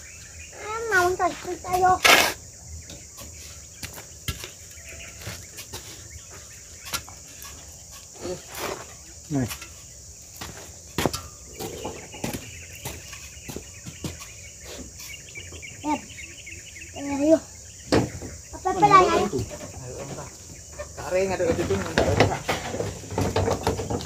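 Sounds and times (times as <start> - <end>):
insects droning: 0.0 - 24.0
short knocks and clatter: 21.4 - 24.0.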